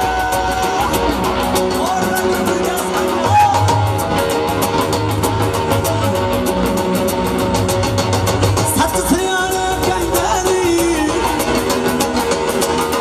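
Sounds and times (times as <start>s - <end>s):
electric guitar: 0.0s - 13.0s
keyboard: 0.0s - 13.0s
steady drum beat: 0.0s - 13.0s.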